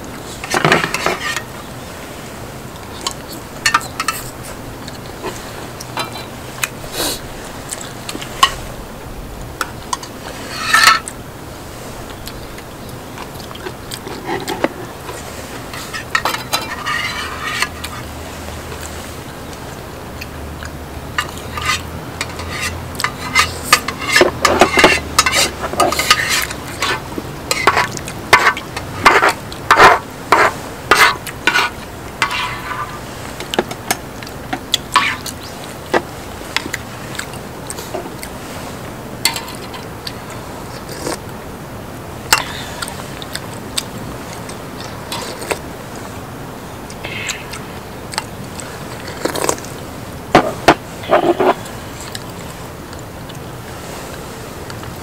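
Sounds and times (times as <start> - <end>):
cutlery clinking against dishes: 3.0 - 4.3, 21.2 - 32.7, 39.3 - 40.2, 42.3 - 42.7.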